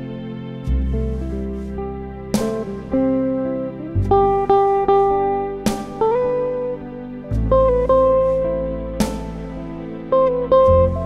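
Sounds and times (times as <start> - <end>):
guitar picked notes: 0.0 - 11.0
low bass note: 0.7 - 11.0.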